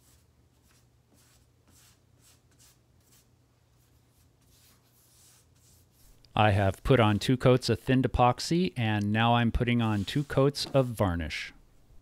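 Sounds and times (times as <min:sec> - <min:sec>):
foam brush swishing strokes: 0:00.0 - 0:06.2, 0:09.6 - 0:11.0.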